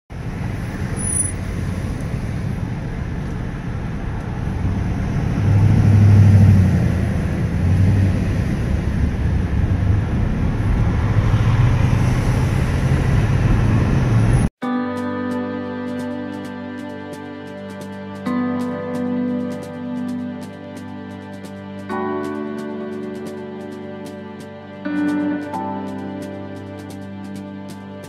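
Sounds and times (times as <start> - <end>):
car cabin road and engine noise: 0.1 - 14.5.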